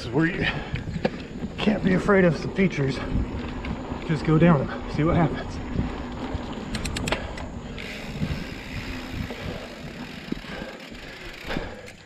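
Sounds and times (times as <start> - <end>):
bike tyres on dirt trail: 0.0 - 12.0
sharp rattling clicks: 6.5 - 12.0.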